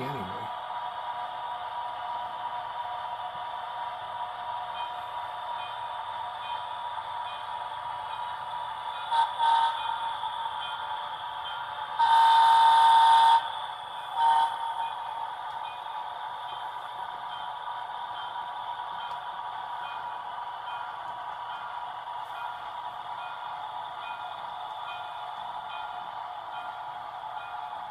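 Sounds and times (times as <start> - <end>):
model locomotive engine sound: 0.0 - 27.9
locomotive horn toots: 9.1 - 9.9, 12.0 - 13.5, 14.1 - 14.9.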